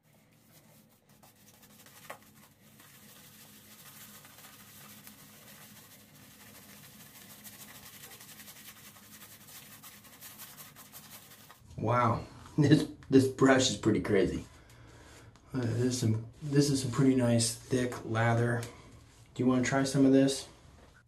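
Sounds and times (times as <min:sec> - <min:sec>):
shaving brush rubbing lather: 0:00.0 - 0:11.6.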